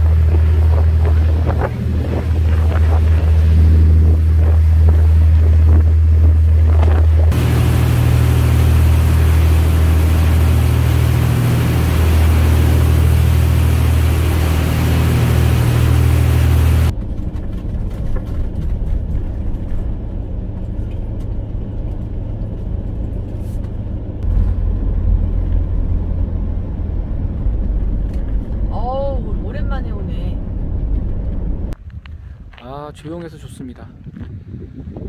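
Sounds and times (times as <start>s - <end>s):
ship engines droning: 0.0s - 16.9s
water noise: 0.0s - 17.0s
vehicle rumble: 0.0s - 32.6s
wind: 0.0s - 35.0s.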